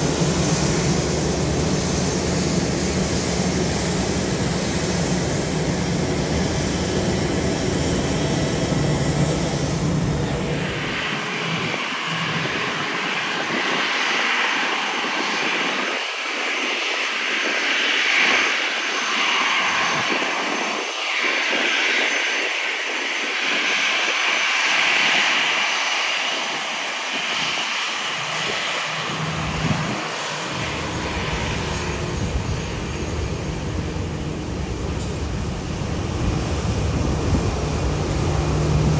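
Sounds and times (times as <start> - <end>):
jet engines whining: 0.0 - 38.9
deep rumble: 28.4 - 38.9.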